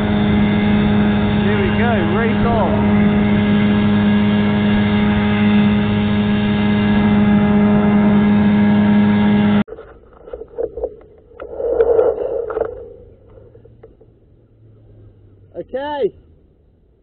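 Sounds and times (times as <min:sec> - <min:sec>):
outboard motor running: 0:00.0 - 0:09.8.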